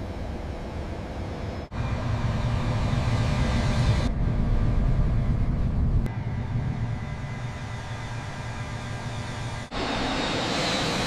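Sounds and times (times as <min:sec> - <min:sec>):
jet engines at takeoff: 0:00.0 - 0:11.0.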